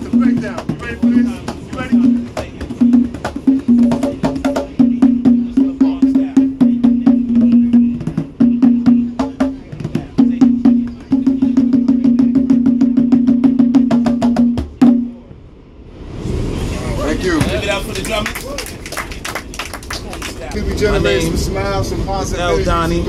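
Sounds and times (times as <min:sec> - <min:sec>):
conga drums played by hand: 0:00.0 - 0:15.2.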